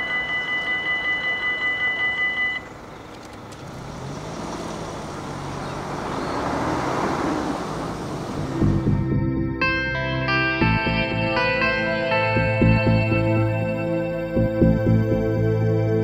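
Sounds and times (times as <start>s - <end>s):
level crossing warning bell: 0.0s - 2.9s, 9.6s - 15.3s
cars driving past: 2.7s - 9.7s.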